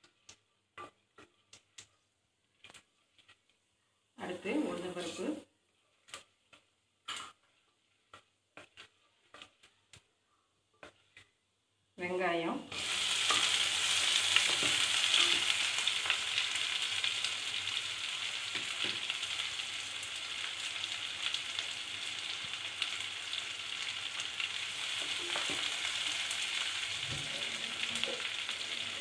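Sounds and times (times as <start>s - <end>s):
wooden spatula stirring pot: 0.0s - 16.3s
onion sizzling in hot oil: 4.2s - 5.4s, 12.0s - 29.0s.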